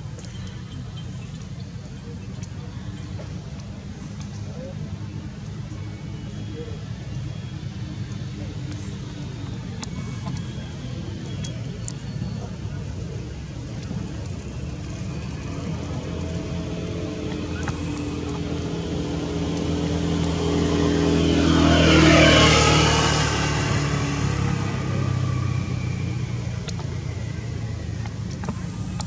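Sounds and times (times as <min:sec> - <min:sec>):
vehicle driving past: 0:15.0 - 0:27.7.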